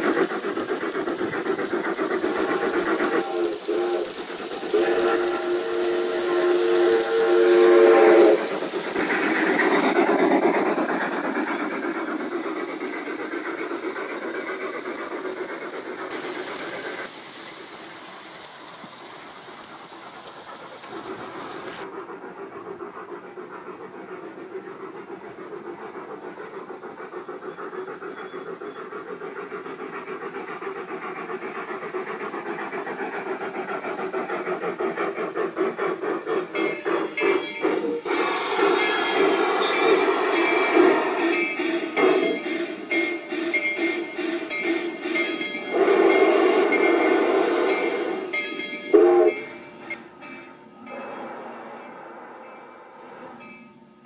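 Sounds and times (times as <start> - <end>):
steam locomotive chuffing: 0.0 - 54.0
train cars clattering on rails: 0.0 - 54.0
model train whistle: 3.2 - 8.5, 45.7 - 48.0, 48.9 - 49.5.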